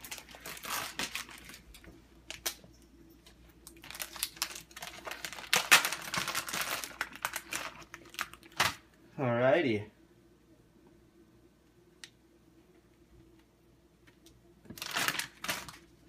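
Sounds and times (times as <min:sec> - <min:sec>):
plastic package crinkling: 0:00.0 - 0:02.6, 0:03.6 - 0:08.8, 0:14.7 - 0:16.0.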